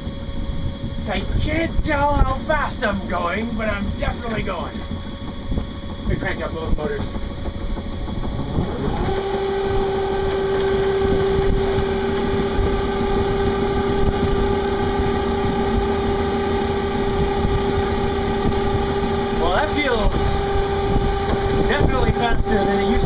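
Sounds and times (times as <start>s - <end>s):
electric motor whine: 0.0s - 23.0s
low rumble: 0.0s - 23.0s.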